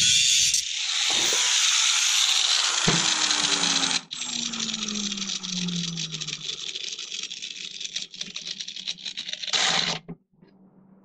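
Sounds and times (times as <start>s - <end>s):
angle grinder grinding steel: 0.0s - 6.4s
rough rattle of disc winding down: 0.7s - 8.8s
motor spinning down whine: 0.8s - 6.9s.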